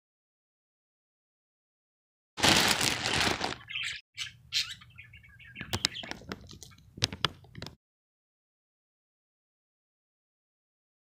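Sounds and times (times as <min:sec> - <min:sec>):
packaging rustling and tearing: 0:02.4 - 0:03.9
crinkling and clicking: 0:05.6 - 0:07.8.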